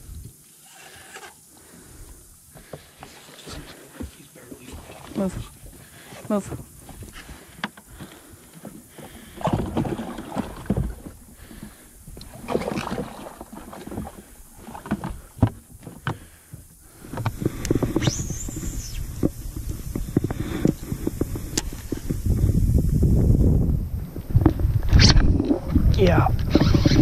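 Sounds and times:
fishing reel spool whine: 17.2s - 24.2s, 26.0s - 27.0s.

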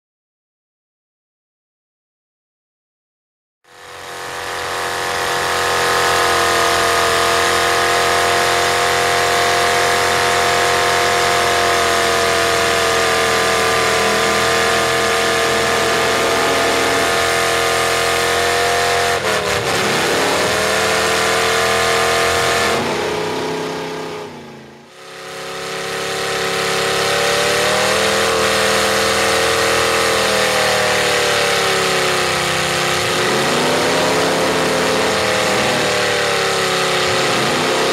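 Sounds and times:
truck engine revving high: 3.7s - 37.9s.

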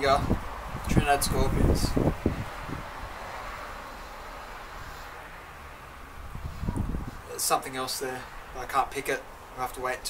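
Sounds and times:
wind buffeting microphone: 0.0s - 3.4s, 6.0s - 7.4s.

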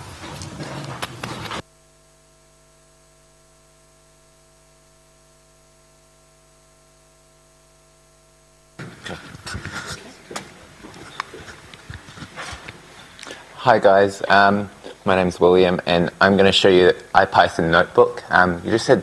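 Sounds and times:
electrical mains hum: 0.0s - 19.0s
microphone handling clicks: 8.8s - 13.5s.

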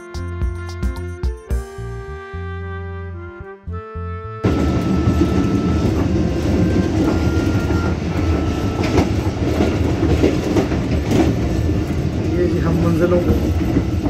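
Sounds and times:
train wheels rumbling on rails: 4.4s - 14.0s
sharp clacks over rail joints: 7.0s - 12.1s.

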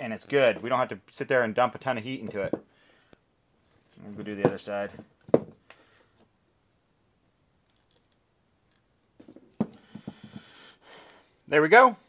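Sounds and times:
faint hiss: 9.7s - 11.9s.

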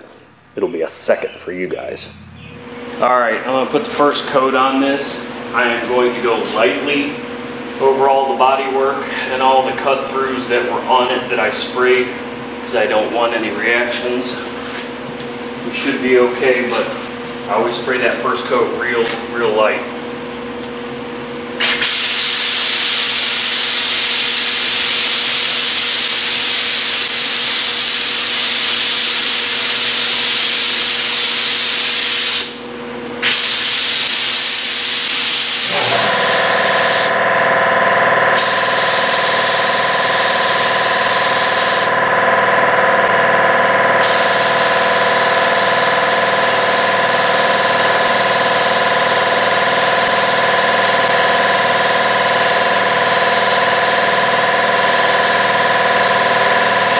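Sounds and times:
machine hum with held tones: 0.0s - 25.5s, 32.5s - 56.9s
paint spray gun hissing: 21.7s - 32.6s, 33.2s - 37.2s, 38.4s - 42.0s, 44.0s - 52.5s, 54.7s - 56.9s.

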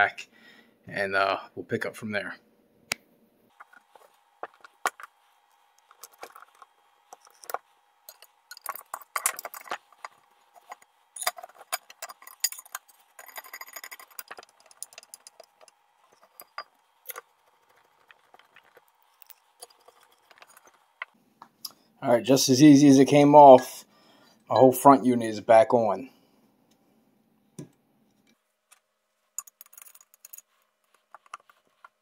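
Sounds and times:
plastic and metal parts clattering: 3.5s - 5.2s, 5.8s - 21.2s, 28.7s - 32.0s.

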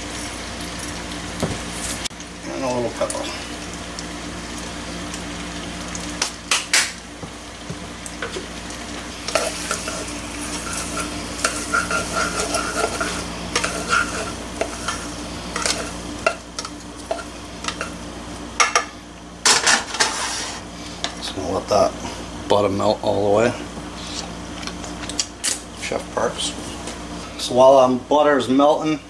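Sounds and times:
light sizzle: 0.0s - 29.0s
utensil scraping and clinking pan: 9.3s - 18.0s.

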